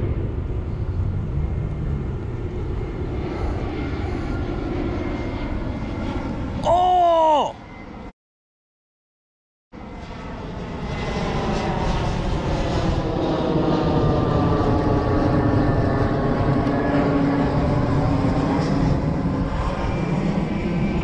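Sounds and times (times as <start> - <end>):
engine drone: 0.0 - 8.1.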